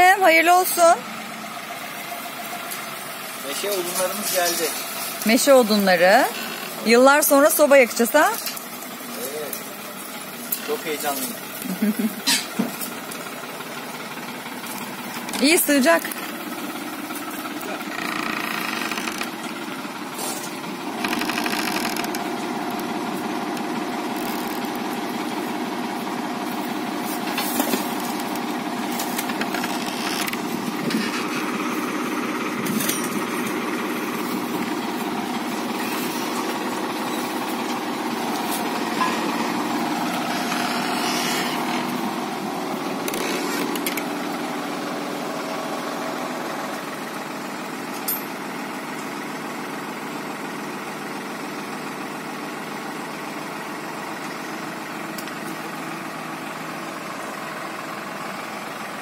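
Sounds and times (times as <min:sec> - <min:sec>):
tractor diesel engine idling: 0:00.0 - 0:59.0.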